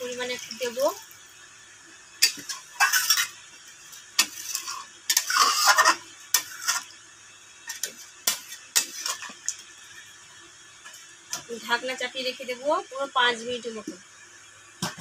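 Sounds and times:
steel spatula scraping metal pan: 2.2 - 3.4, 4.2 - 6.9.

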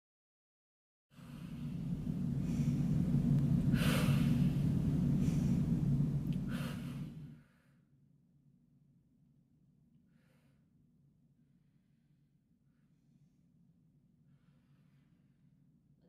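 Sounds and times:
steady low rumble: 1.2 - 7.6
forceful breaths: 1.2 - 7.8.

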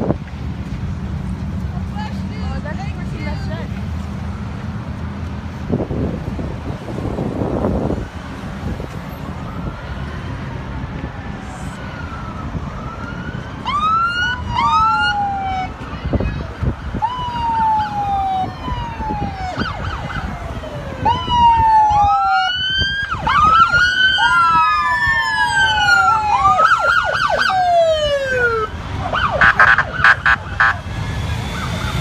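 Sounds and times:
vehicle engine noise: 0.0 - 32.0
police sirens wailing: 6.3 - 32.0
rapid pulsed siren tones: 16.9 - 32.0.

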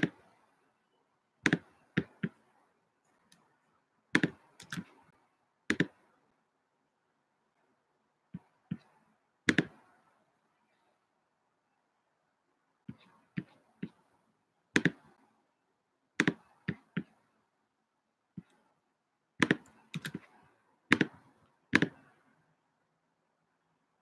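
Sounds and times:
computer keyboard typing clicks: 4.2 - 4.9.

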